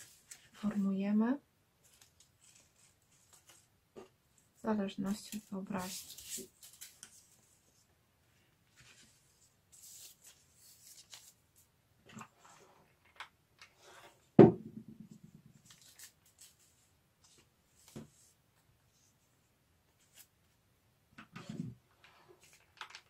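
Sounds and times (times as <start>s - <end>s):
paper rustling and crinkling: 1.8s - 3.7s, 5.0s - 7.9s, 8.7s - 12.3s, 15.6s - 18.4s, 22.1s - 23.0s
knock on tabletop: 14.4s - 15.0s.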